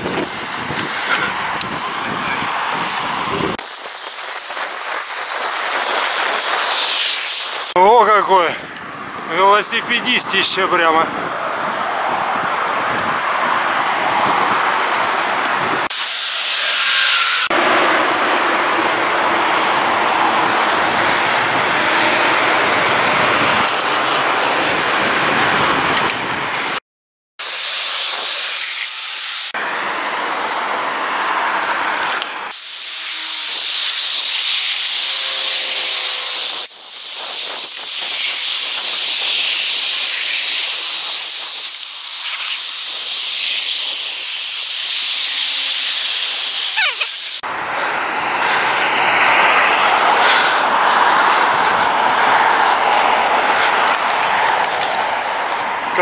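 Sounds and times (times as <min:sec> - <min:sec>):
wind rushing over microphone: 0:00.0 - 0:26.8, 0:34.0 - 0:41.7, 0:47.4 - 0:56.0.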